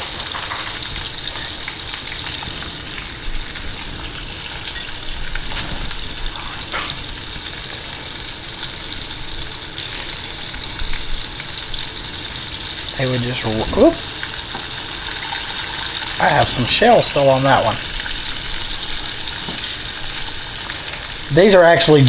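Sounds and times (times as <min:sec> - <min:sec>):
shrimp deep-frying in hot fat: 0:00.0 - 0:22.0.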